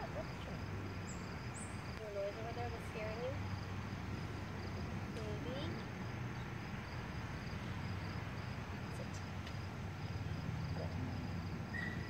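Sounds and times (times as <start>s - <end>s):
insects chirping: 0.0s - 12.0s
low outdoor rumble: 0.0s - 12.0s.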